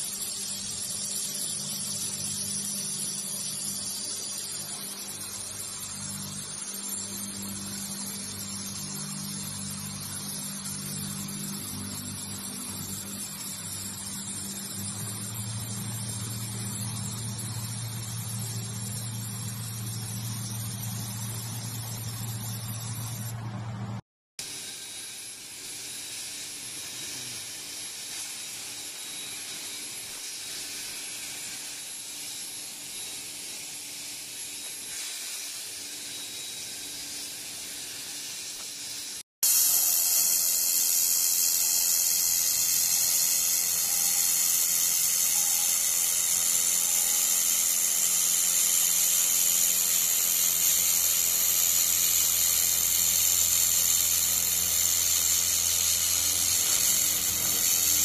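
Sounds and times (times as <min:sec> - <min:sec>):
laser welding torch hissing: 0:00.0 - 0:23.3, 0:24.4 - 0:58.0
plasma cutter hissing: 0:00.0 - 0:23.3, 0:24.4 - 0:58.0
low hum: 0:15.0 - 0:24.0.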